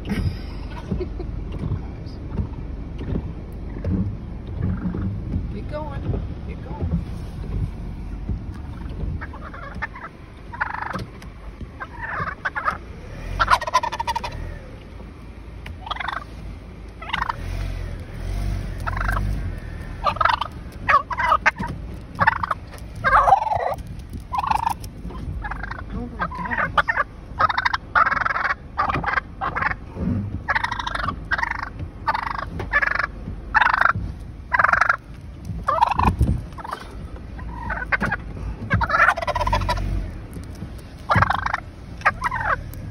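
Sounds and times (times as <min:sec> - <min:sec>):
low rumble of a car: 0:00.0 - 0:42.9
turkey gobbling: 0:03.6 - 0:03.9, 0:04.6 - 0:05.1, 0:08.6 - 0:14.8, 0:15.8 - 0:16.4, 0:17.0 - 0:17.8, 0:18.8 - 0:19.4, 0:20.0 - 0:29.8, 0:30.4 - 0:42.9.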